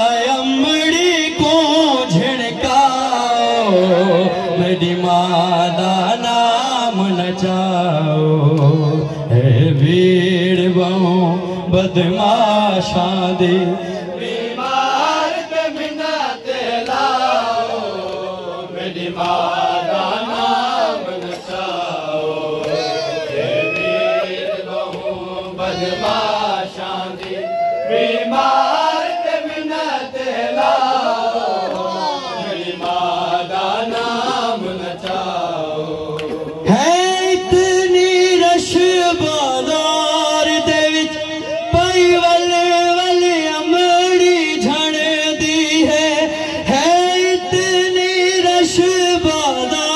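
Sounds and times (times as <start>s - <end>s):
man chanting a lament: 0.0s - 16.4s, 28.0s - 49.9s.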